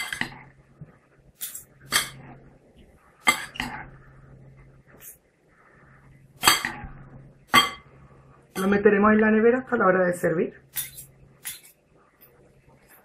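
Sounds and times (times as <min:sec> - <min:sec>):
cutlery clinking on glass bowl: 0:00.0 - 0:00.4, 0:01.4 - 0:02.2, 0:03.3 - 0:03.8, 0:07.5 - 0:07.9.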